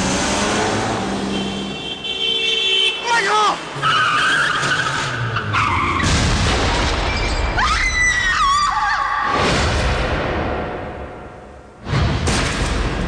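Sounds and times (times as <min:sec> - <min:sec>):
rushing road noise: 0:00.0 - 0:07.2
truck tyres screeching: 0:03.6 - 0:06.1.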